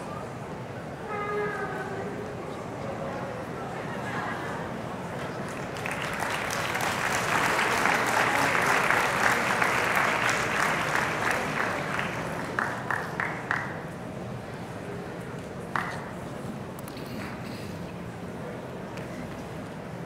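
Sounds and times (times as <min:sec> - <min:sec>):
audience applauding: 0:05.2 - 0:13.8.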